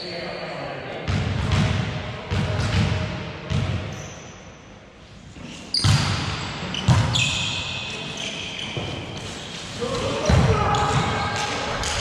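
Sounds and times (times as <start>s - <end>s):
thin high shoe squeaks: 6.7s - 9.6s.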